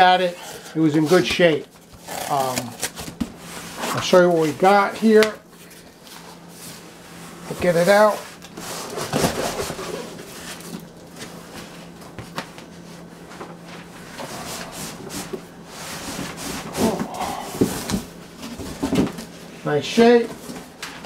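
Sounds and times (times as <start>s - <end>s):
faint hum: 0.0s - 21.0s
cardboard flaps scraping: 6.1s - 19.3s
knocks and rustles: 16.1s - 19.3s.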